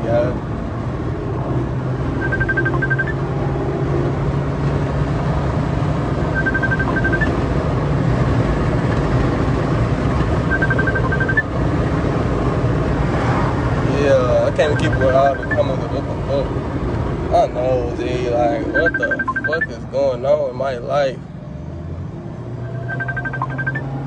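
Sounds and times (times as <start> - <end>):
car engine and road rumble: 0.0 - 24.0
high-pitched beeps: 2.2 - 3.2, 6.3 - 7.3, 10.5 - 11.5, 14.6 - 15.8, 18.6 - 19.7, 22.6 - 24.0.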